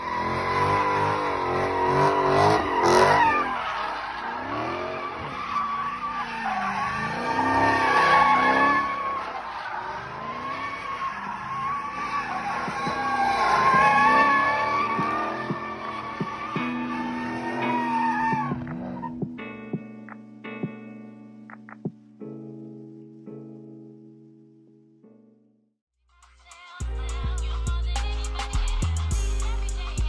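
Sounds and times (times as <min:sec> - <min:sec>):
tyres squealing: 0:00.0 - 0:19.2
car engine revving: 0:00.0 - 0:19.3.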